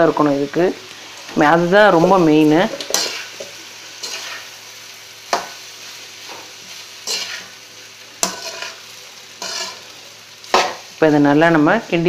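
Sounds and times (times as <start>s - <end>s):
food sizzling in oil: 0.0s - 12.0s
metal spatula scraping pan: 2.0s - 4.5s, 6.2s - 7.6s, 8.2s - 10.9s.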